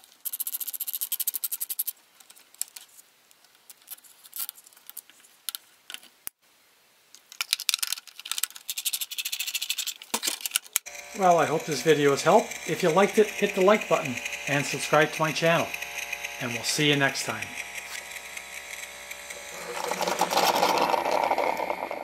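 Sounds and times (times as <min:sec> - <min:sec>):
zip tie ratchet clicks: 0:10.8 - 0:21.9.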